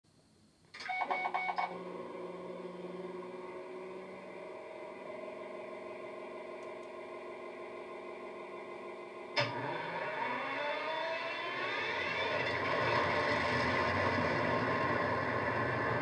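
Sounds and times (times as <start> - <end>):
short beeps: 0.8 - 1.7.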